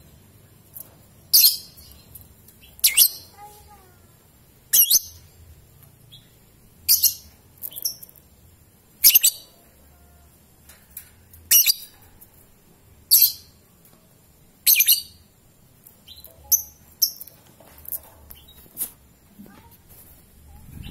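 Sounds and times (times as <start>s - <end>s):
birds chirping shrilly: 1.3s - 3.7s.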